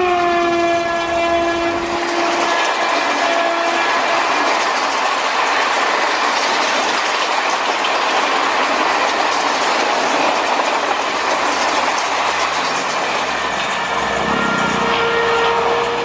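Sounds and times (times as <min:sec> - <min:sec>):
train coaches rushing past: 0:01.4 - 0:16.0
wheels clattering over track: 0:02.3 - 0:13.3.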